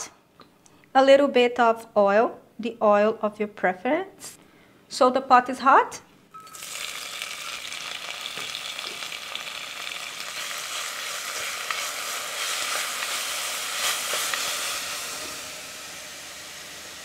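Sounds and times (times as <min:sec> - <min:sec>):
vegetables sizzling in oil: 0:06.4 - 0:17.0.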